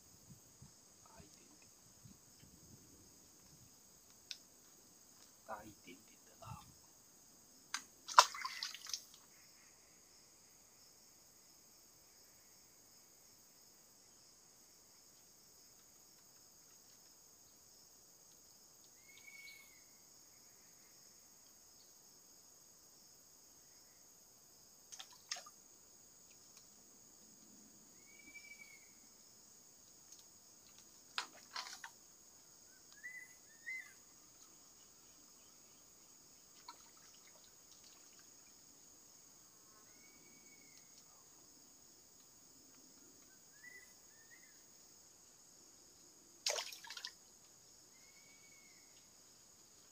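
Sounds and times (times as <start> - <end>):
faint clicks: 3.4 - 4.5, 29.8 - 31.9.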